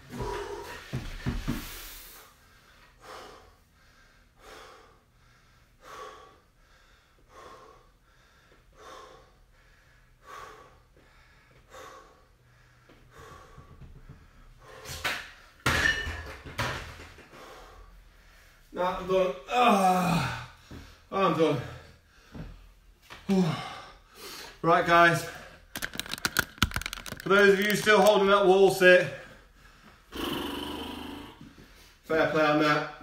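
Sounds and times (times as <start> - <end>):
man breathing hard: 0.0 - 15.6, 17.2 - 18.8, 19.8 - 24.6, 29.1 - 32.0
dumbbells set down on rubber floor: 14.9 - 17.2.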